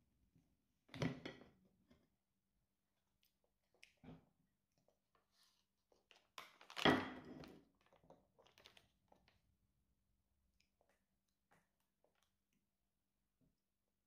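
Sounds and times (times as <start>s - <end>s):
plastic pouch crinkling: 6.0s - 6.8s.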